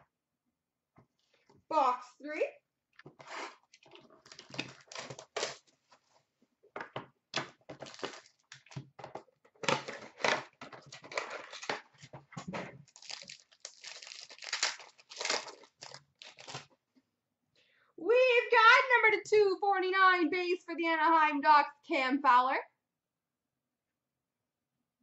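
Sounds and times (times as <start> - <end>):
packaging torn and crinkled: 3.8 - 5.7, 7.8 - 8.8, 11.0 - 11.9, 12.8 - 16.7.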